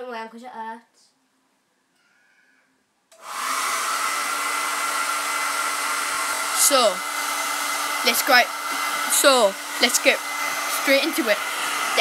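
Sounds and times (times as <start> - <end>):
hair dryer running: 3.1 - 12.0.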